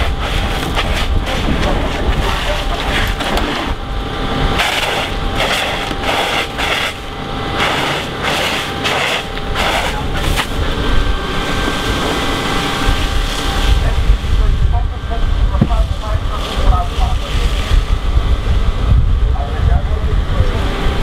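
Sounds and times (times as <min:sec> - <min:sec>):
fire hose nozzle spraying: 0:00.0 - 0:03.8, 0:04.6 - 0:10.7
low rumble: 0:00.0 - 0:21.0.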